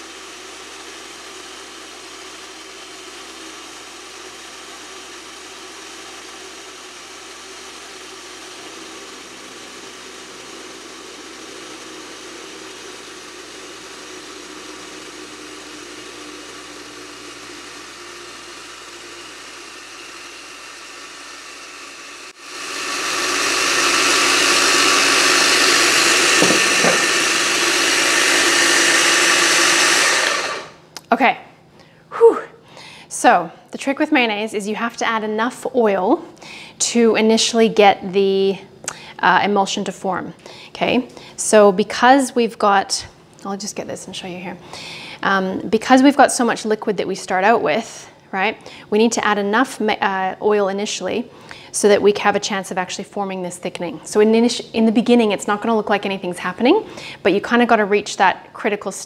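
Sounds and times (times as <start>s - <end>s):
food processor motor running: 0.0s - 31.0s.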